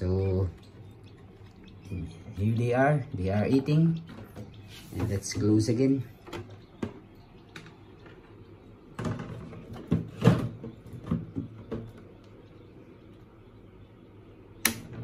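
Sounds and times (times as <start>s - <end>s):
hard plastic knocks and clatters: 6.2s - 8.2s, 9.0s - 12.1s.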